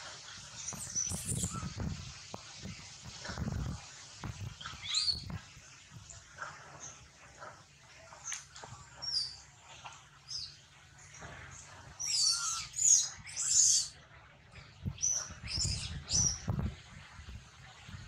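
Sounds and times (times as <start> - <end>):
monkey squealing cries: 12.0 - 13.9.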